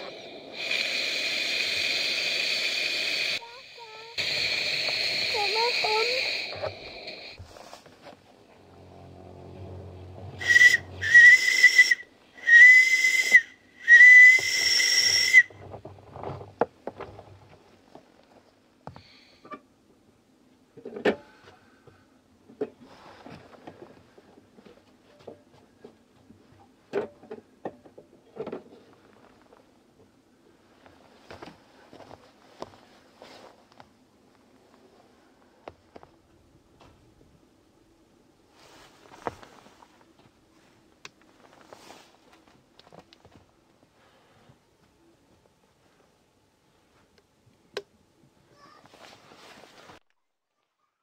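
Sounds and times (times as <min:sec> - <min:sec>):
steam whistle blasts: 0:08.8 - 0:15.5.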